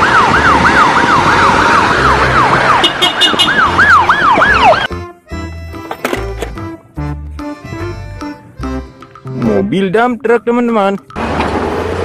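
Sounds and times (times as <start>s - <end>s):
ambulance siren wailing: 0.0s - 5.0s
music: 3.5s - 11.5s.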